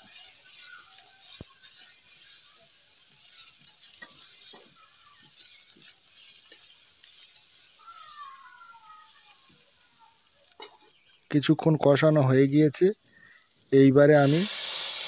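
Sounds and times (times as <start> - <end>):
spatula scraping and knocking pan: 0.0 - 8.5
vegetables sizzling in oil: 0.0 - 15.0.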